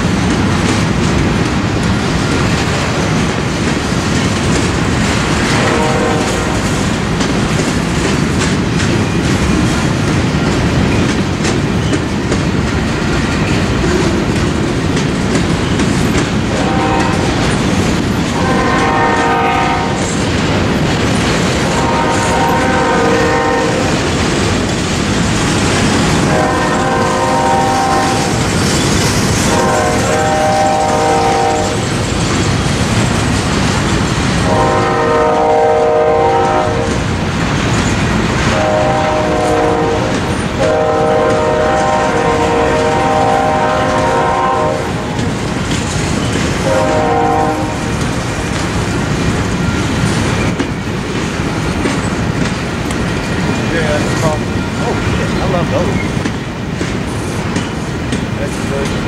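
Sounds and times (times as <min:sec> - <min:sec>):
freight train wheels rumbling on rail: 0:00.0 - 0:59.0
locomotive horn blasts: 0:05.4 - 0:06.6, 0:16.5 - 0:17.4, 0:18.4 - 0:20.0, 0:21.6 - 0:24.0, 0:26.2 - 0:28.4, 0:29.5 - 0:31.8, 0:34.4 - 0:37.0, 0:38.5 - 0:45.2, 0:46.6 - 0:47.9.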